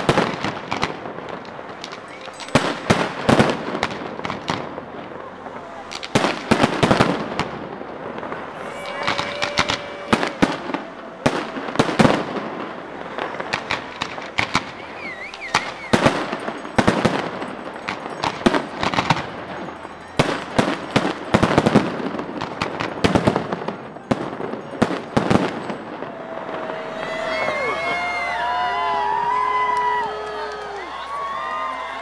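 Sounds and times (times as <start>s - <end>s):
fireworks bangs and crackles: 0.0s - 29.8s
warbling firework whistle: 1.8s - 30.3s.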